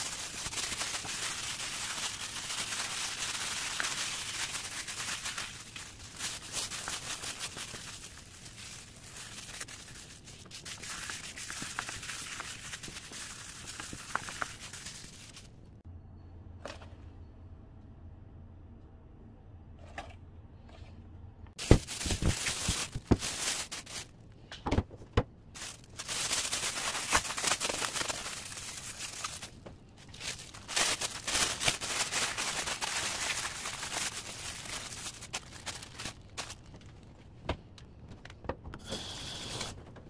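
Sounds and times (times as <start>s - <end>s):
plastic bags crinkling: 0.0s - 15.5s, 21.6s - 24.1s, 25.6s - 37.2s.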